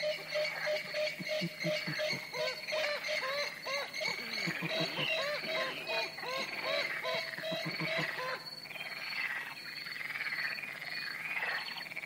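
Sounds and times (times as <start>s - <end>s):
swamphen calling: 0.0s - 11.8s.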